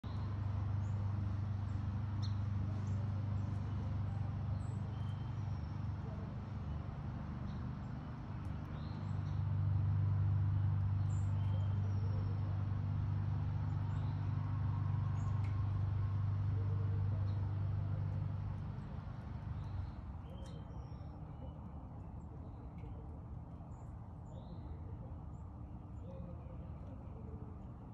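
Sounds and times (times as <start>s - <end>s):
small birds chirping: 0.0s - 27.6s
low machine hum: 0.0s - 27.9s.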